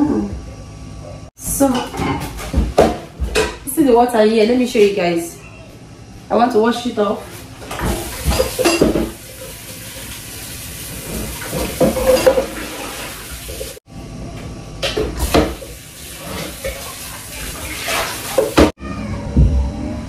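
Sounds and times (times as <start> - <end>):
pot clanking against sink: 7.6 - 9.2, 11.0 - 13.0.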